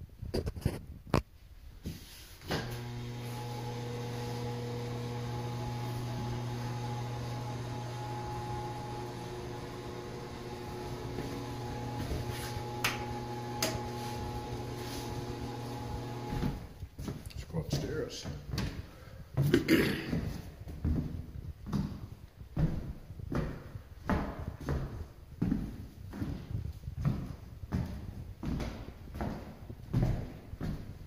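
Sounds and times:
electric fan motor hum: 2.5 - 16.8.

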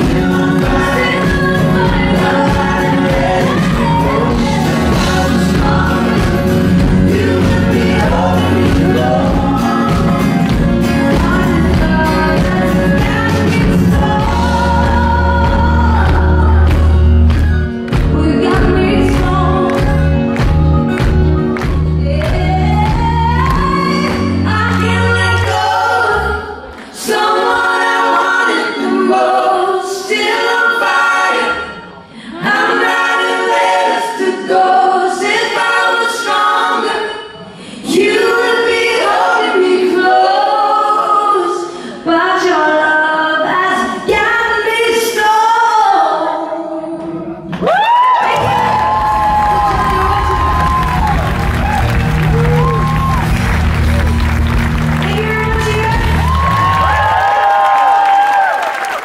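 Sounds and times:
voices singing unaccompanied: 0.0 - 16.5, 25.1 - 47.1
live band playing: 0.0 - 27.2, 48.0 - 57.7
woman singing: 0.0 - 47.2, 48.2 - 53.3, 55.0 - 57.2.

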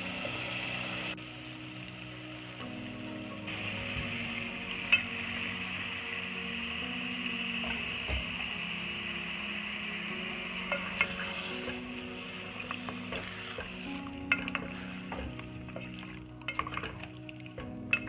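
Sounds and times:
beef sizzling in a pot: 0.0 - 18.0
wooden spoon scraping a pot: 10.7 - 12.1, 12.8 - 18.0.

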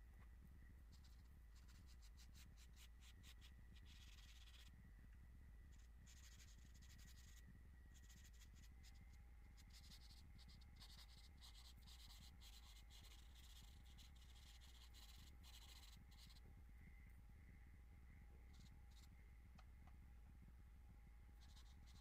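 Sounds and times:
low steady hum: 0.0 - 22.0
charcoal scratching on paper: 0.9 - 4.7, 5.7 - 7.4, 8.0 - 9.0, 9.6 - 16.4, 21.4 - 22.0.

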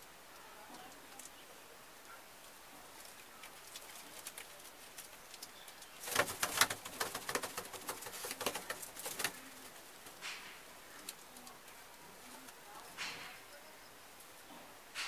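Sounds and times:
pigeons clattering: 2.8 - 13.5.

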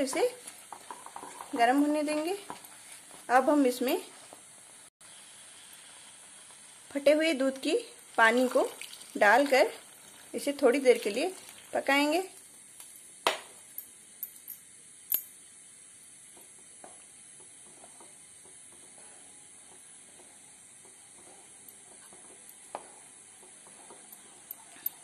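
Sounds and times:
faint steady hiss: 0.0 - 25.0
spatula stirring mashed rice: 17.3 - 24.5.

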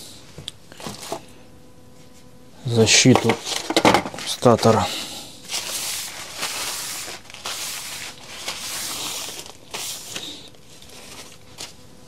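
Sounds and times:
paper towel wiping metal bench: 5.5 - 11.8.

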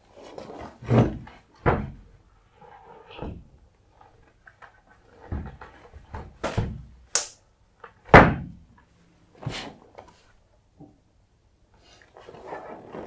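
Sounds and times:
rubber bands snapping: 7.1 - 7.4.

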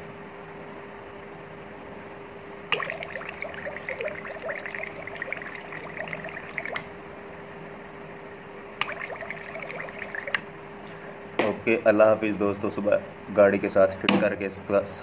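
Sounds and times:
steady hum: 2.4 - 11.9
gas bubbling through water: 2.7 - 6.9, 8.8 - 10.5.

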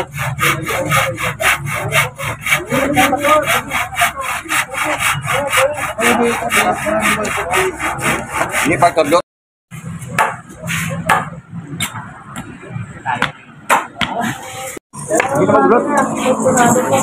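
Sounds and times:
handsaw cutting wood: 0.0 - 9.2, 15.9 - 17.0.

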